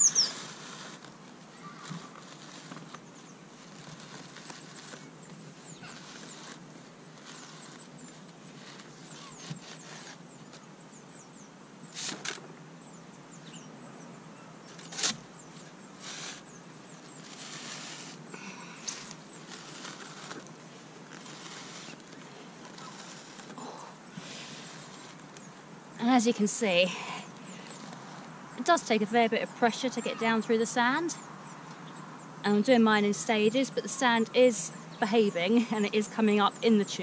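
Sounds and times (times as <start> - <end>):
pipe scraping through sand: 0.0 - 10.4, 11.9 - 12.4, 14.7 - 29.1.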